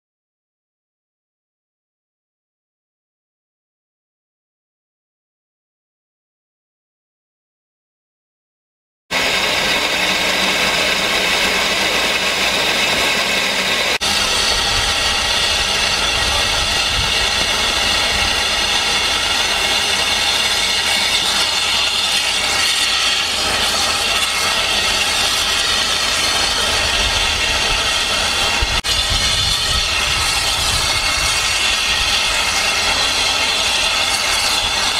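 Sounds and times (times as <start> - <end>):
steam locomotive hissing: 9.1 - 34.9.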